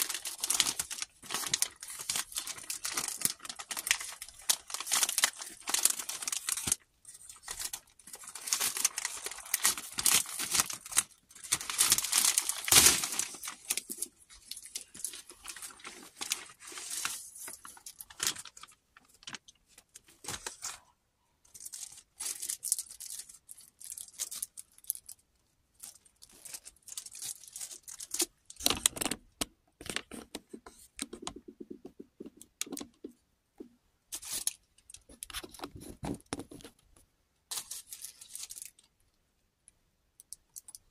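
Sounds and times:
plastic bag tearing and crinkling: 0.0 - 19.4, 25.8 - 29.2, 37.5 - 38.9
plastic wrap crinkling: 0.0 - 20.9, 21.5 - 25.2, 25.8 - 30.3, 37.5 - 38.9.

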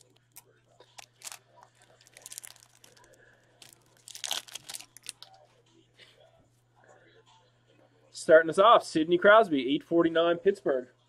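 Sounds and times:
foil wrapper crinkling: 0.0 - 5.3.

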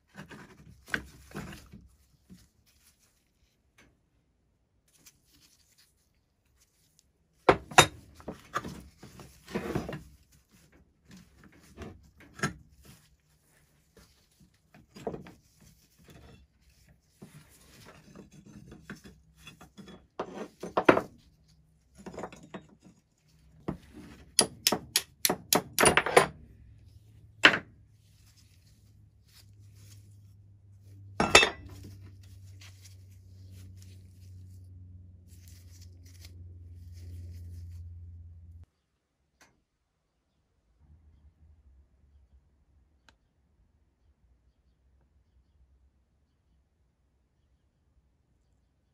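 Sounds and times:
metal parts clinking and scraping: 31.2 - 32.2.

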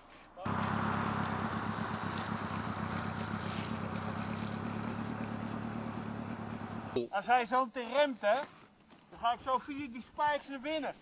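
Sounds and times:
tyre and road noise: 0.4 - 7.0
vehicle engine running: 0.4 - 7.0.

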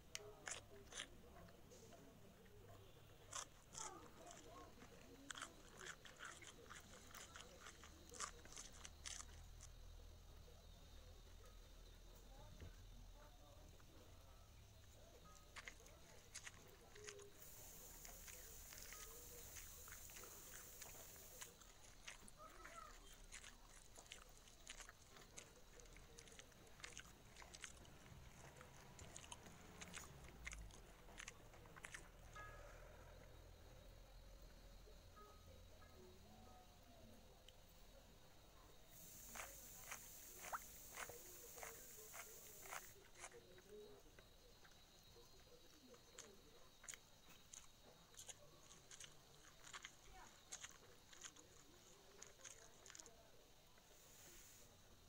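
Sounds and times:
chewing with wet mouth clicks: 0.0 - 9.8, 14.9 - 32.5, 38.9 - 44.8, 45.6 - 53.3.

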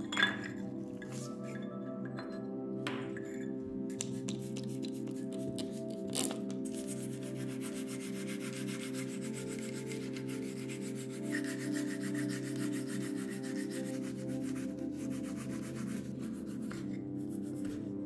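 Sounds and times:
background music: 0.0 - 18.0
sanding on metal: 6.8 - 17.4.

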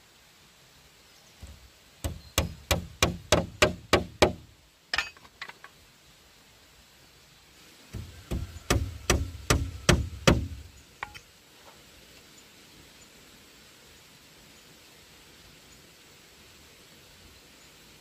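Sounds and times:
tool striking bamboo: 1.4 - 4.4, 7.9 - 11.2.

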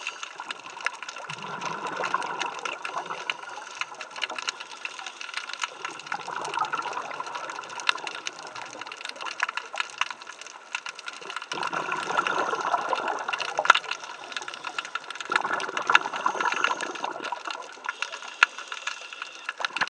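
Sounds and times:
underwater clicking crackle: 0.0 - 19.9
diver exhaling bubbles: 1.2 - 4.7, 5.8 - 8.6, 11.5 - 18.0.

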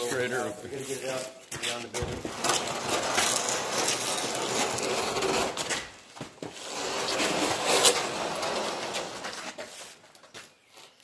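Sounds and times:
wood scraping across concrete floor: 0.0 - 11.0.

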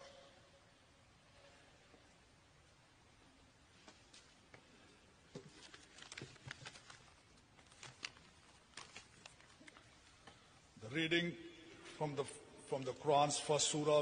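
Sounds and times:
small clicks and rustles: 5.3 - 10.6.

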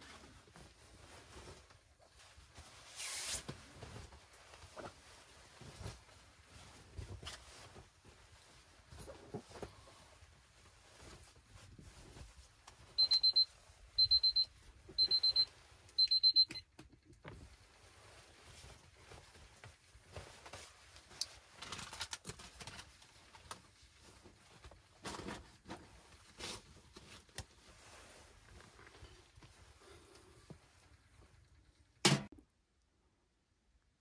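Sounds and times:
electronic alarm beeping: 13.0 - 16.6.

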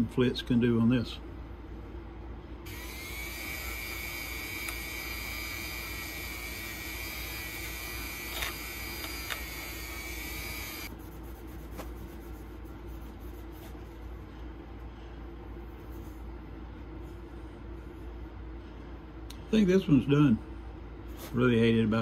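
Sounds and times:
rotary tool high whine: 2.7 - 10.9.

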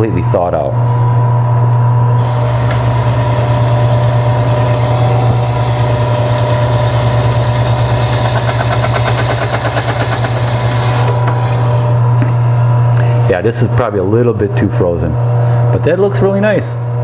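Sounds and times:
meat slicer motor hum: 2.2 - 12.7.

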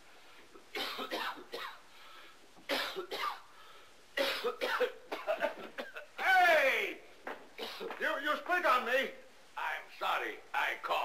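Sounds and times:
man coughing and hacking: 0.7 - 1.8, 2.7 - 3.5, 4.2 - 6.5, 7.6 - 8.0.

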